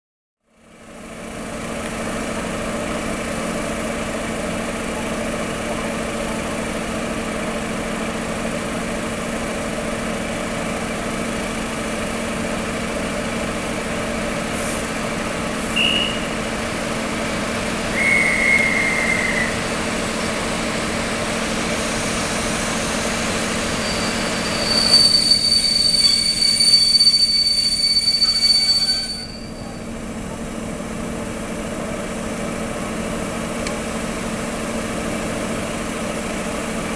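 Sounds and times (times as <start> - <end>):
diesel locomotive idling: 0.5 - 36.9
hissing squeal with high whistle: 15.7 - 16.4, 17.9 - 19.7, 22.4 - 29.9
short high squeaks: 23.7 - 29.9.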